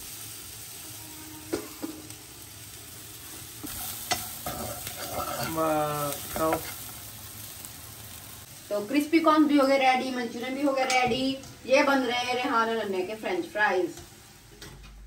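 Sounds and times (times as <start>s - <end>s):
fries sizzling in hot oil: 0.0s - 14.8s
spoon stirring and knocking pan: 3.6s - 6.8s.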